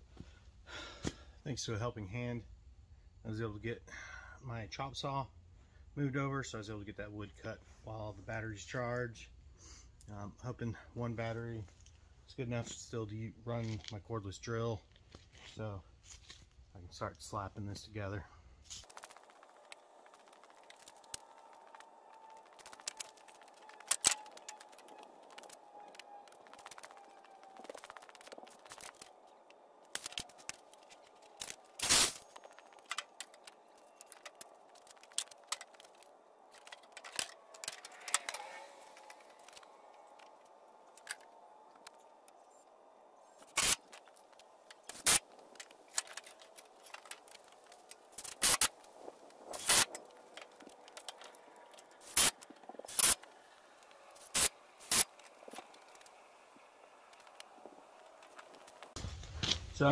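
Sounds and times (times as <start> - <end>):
wood scraping: 18.6 - 42.0.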